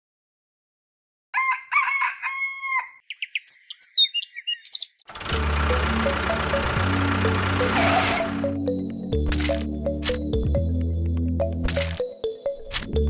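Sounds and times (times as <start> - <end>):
rooster crowing: 1.3 - 3.0
high bird chirps: 2.6 - 5.1.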